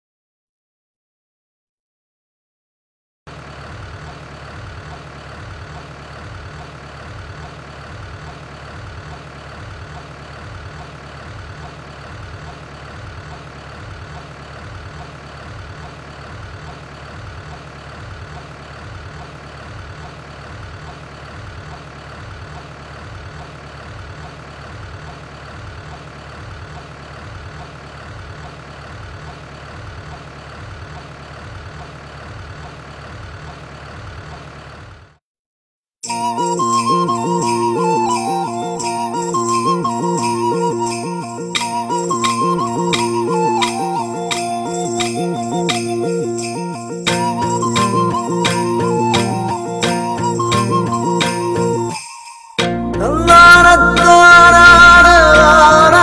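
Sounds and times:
machine running with low throb: 3.3 - 34.9.

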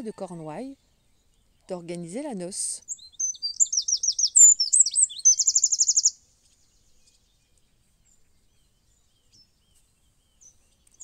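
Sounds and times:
songbird singing: 0.0 - 11.0.

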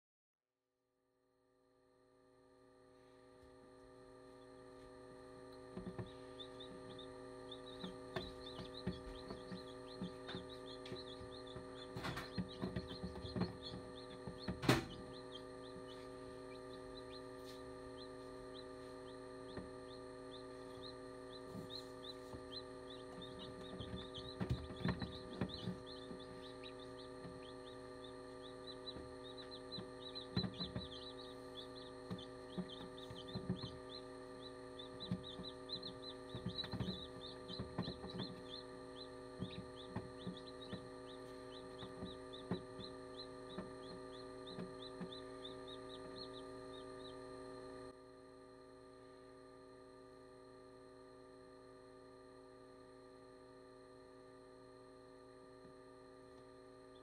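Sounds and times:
incubator fan humming: 1.7 - 57.0
chicks peeping: 5.5 - 47.6
knocks and taps: 7.8 - 15.0, 23.1 - 27.5, 28.8 - 33.8, 35.0 - 38.6, 41.5 - 42.9.

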